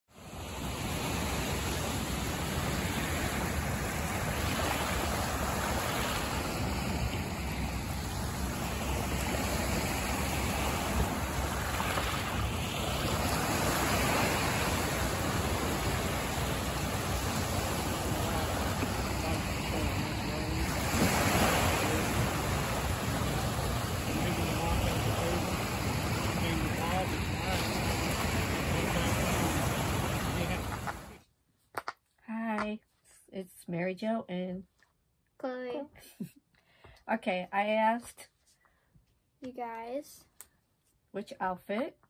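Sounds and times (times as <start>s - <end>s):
small waves on pebble shore: 0.2s - 31.2s
wind on microphone: 0.5s - 31.2s.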